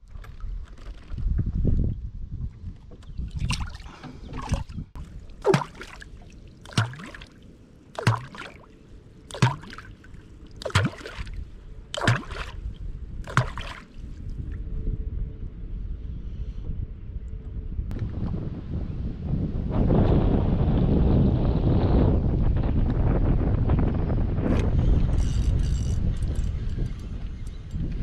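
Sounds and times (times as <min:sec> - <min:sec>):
hollow plops of wood striking water: 0:02.9 - 0:08.7, 0:09.3 - 0:10.0, 0:10.6 - 0:11.4, 0:12.0 - 0:12.6, 0:13.3 - 0:13.9
water splash: 0:03.4 - 0:14.0.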